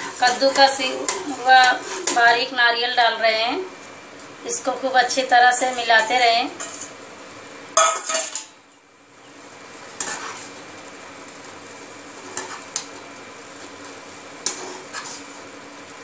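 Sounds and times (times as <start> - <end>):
spoon scraping a pan: 0.0 - 2.5, 5.5 - 7.0, 7.8 - 8.5, 10.0 - 10.6, 12.1 - 13.0, 13.6 - 15.4
simmering mixture sizzling: 0.0 - 16.0.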